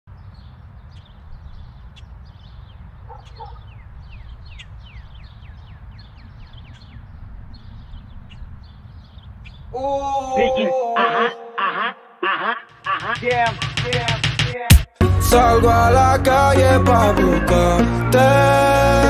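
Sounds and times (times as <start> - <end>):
birds chirping: 0.1 - 14.4
dog barking: 3.1 - 3.7.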